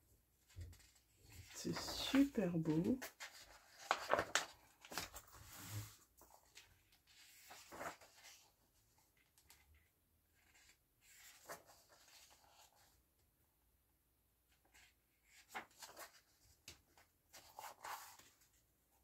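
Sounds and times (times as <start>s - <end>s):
book pages turning: 0.5s - 8.5s, 15.4s - 18.4s.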